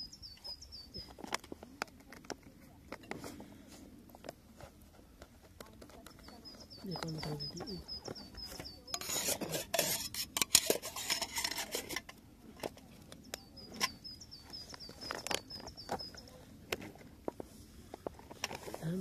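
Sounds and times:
bird chirping: 0.0s - 1.2s, 5.9s - 9.5s, 12.9s - 16.6s
metal pot clinking and scraping: 7.4s - 12.7s.

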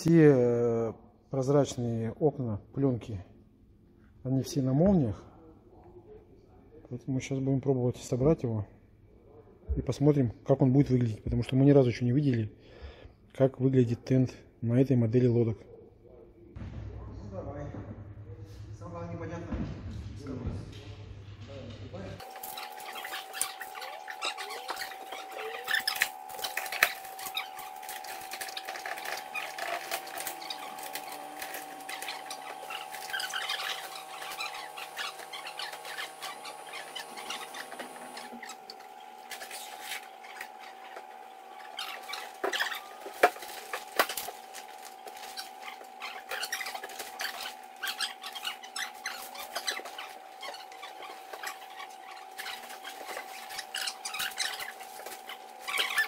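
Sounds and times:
steady high hum: 20.2s - 56.0s.

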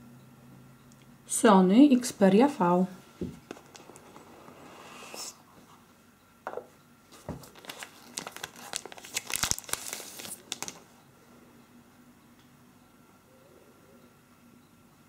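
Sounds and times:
plastic bag crinkling: 7.2s - 10.9s.

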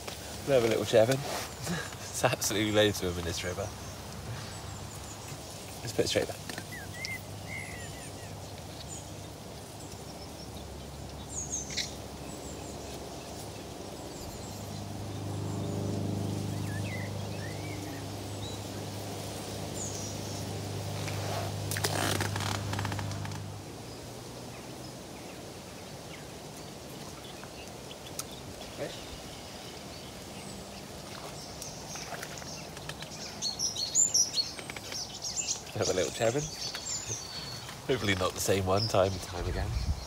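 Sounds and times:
birds chirping: 0.0s - 40.0s
low engine drone: 13.6s - 24.8s.

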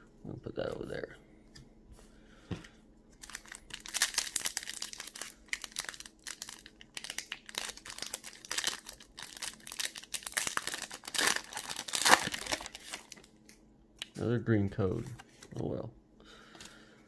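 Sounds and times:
foil wrapper crinkling and tearing: 3.2s - 13.6s.

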